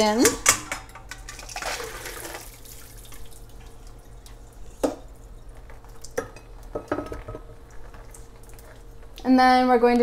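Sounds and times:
metal cookware clanking: 0.0s - 1.6s.

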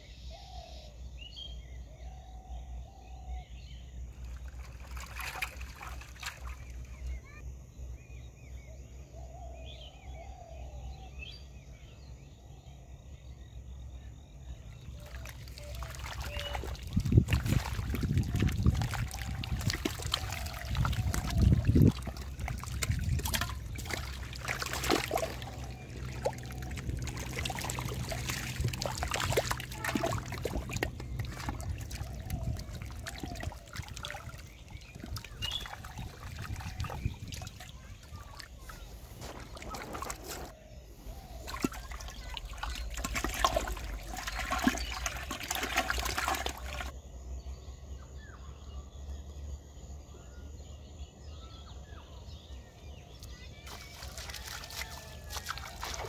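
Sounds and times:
fish splashing in water: 4.2s - 7.0s, 14.9s - 40.6s, 41.2s - 47.0s, 53.6s - 56.0s
water trickling: 4.2s - 7.0s, 14.7s - 40.5s, 41.3s - 47.0s, 53.6s - 56.0s.

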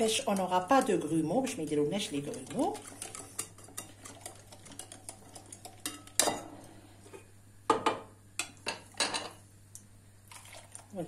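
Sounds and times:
whisk stirring in glass bowl: 0.0s - 6.3s.

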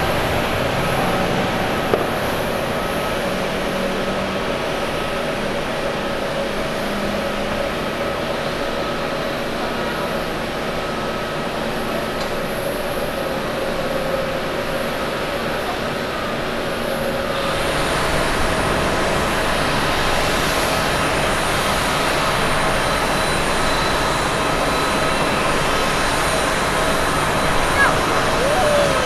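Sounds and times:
jet engine rumble: 0.0s - 9.6s, 16.6s - 29.0s
jet engine rushing and whine: 0.0s - 29.0s.

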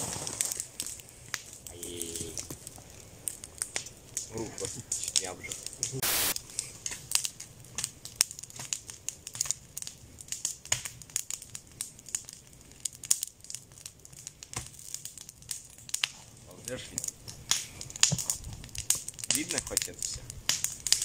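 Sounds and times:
campfire crackling and popping: 0.0s - 21.0s
stick stirring fire: 0.0s - 21.0s
static hiss: 5.0s - 6.4s.

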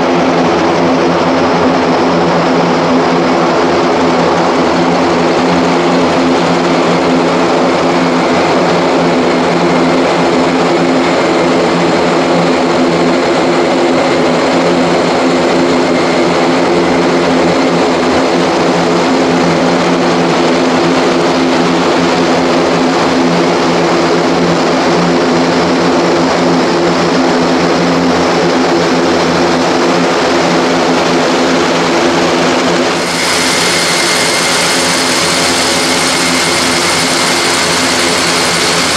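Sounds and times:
turboprop engines propeller drone: 0.0s - 38.9s.

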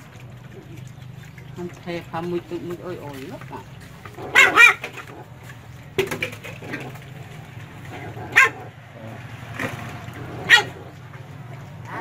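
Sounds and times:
puppies jostling at food bowl: 0.0s - 8.5s
puppy yelps: 4.2s - 5.0s, 8.3s - 8.7s, 10.4s - 10.9s.

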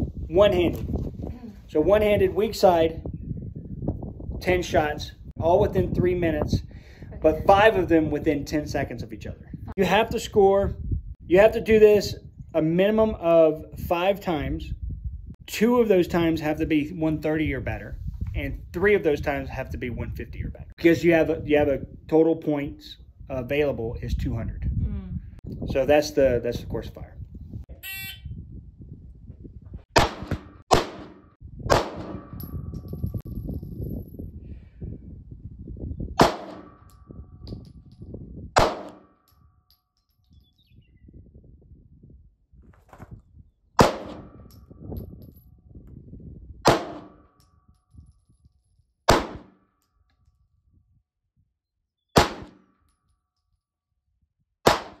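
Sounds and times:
short electronic beep: 27.8s - 28.2s
pistol shots with echo: 30.0s - 32.4s, 38.6s - 39.1s, 43.8s - 44.5s, 46.7s - 47.3s, 49.1s - 49.6s, 52.2s - 52.6s, 54.7s - 55.0s.

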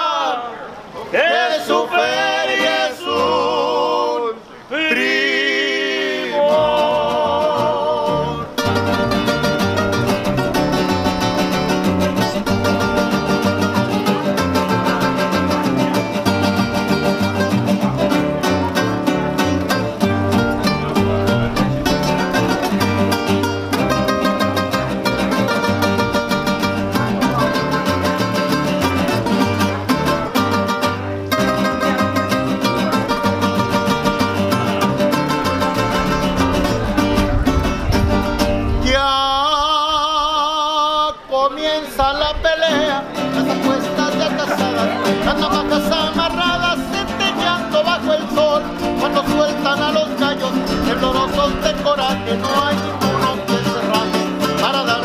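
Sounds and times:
person singing with vibrato: 0.0s - 9.6s, 38.7s - 55.0s
strummed guitars: 6.2s - 55.0s
plucked bass line: 7.0s - 39.2s, 42.3s - 55.0s.

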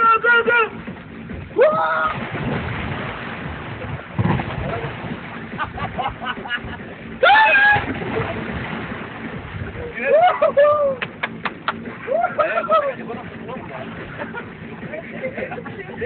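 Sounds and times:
water splashing: 0.0s - 16.0s
loud yell: 7.2s - 7.9s
person shouting: 7.2s - 7.9s.

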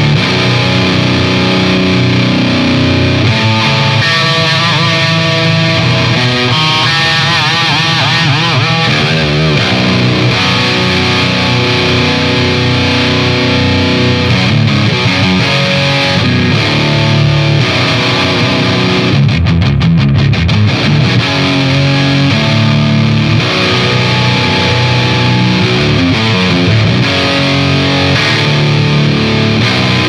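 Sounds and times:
distorted electric guitar riffing: 0.0s - 30.0s.

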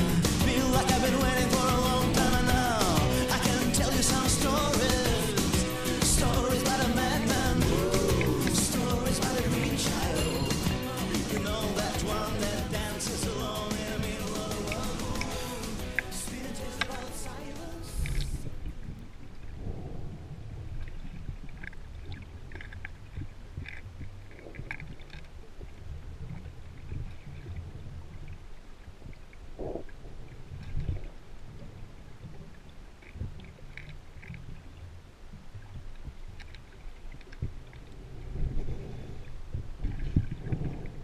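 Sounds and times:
underwater bubbles gurgling: 0.0s - 41.0s
faint clicks: 20.7s - 41.0s.

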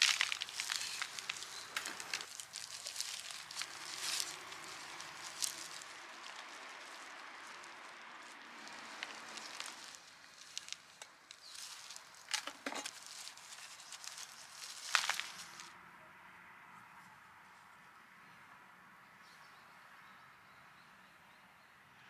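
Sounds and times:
metal scoop scraping soil: 0.0s - 5.8s
soil rustling under hands: 0.0s - 15.7s.

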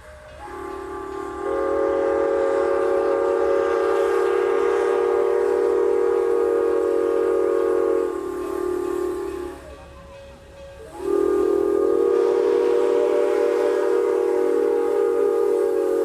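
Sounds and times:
chime steam whistle blowing: 0.0s - 16.0s.

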